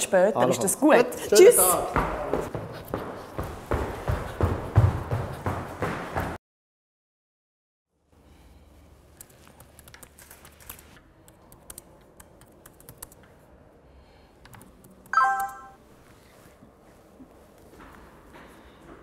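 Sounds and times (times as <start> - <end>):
laptop keyboard typing: 9.2 - 13.3, 14.4 - 15.8
smartphone alert tone: 15.2 - 15.8.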